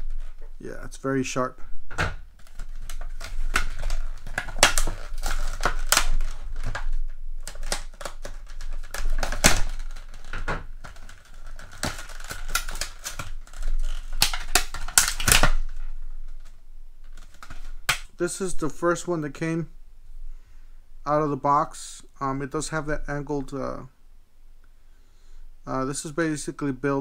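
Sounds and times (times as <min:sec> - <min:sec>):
plastic blister pack crackling: 0:02.2 - 0:18.7.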